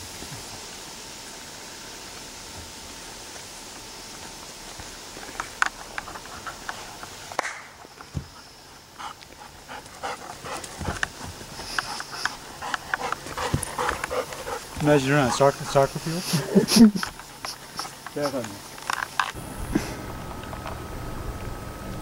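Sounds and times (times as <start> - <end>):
ticks and rustles on grass: 0.0 - 20.4
dog panting: 8.2 - 18.8.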